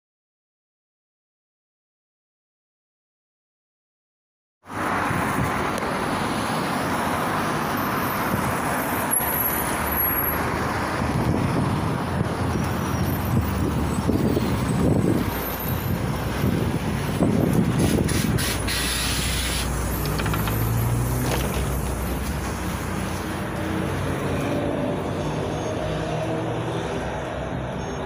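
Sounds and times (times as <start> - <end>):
street traffic: 4.6 - 28.0
bus engine idling: 16.0 - 23.5
compressed air hiss: 17.8 - 19.8.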